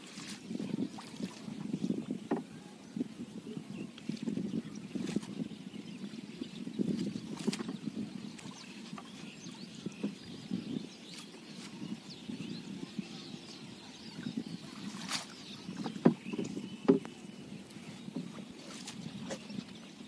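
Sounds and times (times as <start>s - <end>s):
water sloshing around boat: 0.0s - 20.0s
sharp wooden knocks: 16.0s - 17.1s.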